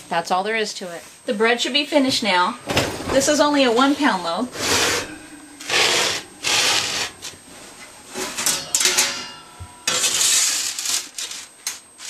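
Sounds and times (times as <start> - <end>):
scraping and rubbing at oven: 3.2 - 9.3, 9.9 - 11.6.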